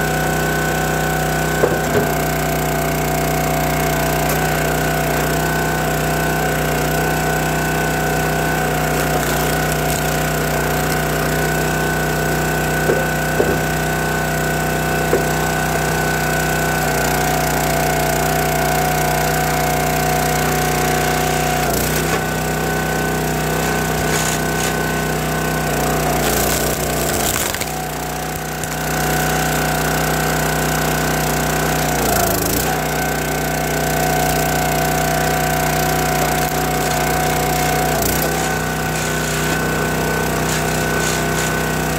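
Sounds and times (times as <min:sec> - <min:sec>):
small engine running: 0:00.0 - 0:41.9
logs knocking and cracking: 0:12.8 - 0:13.8, 0:15.1 - 0:15.4, 0:23.6 - 0:25.0, 0:25.8 - 0:29.0, 0:36.3 - 0:39.7, 0:40.3 - 0:41.8.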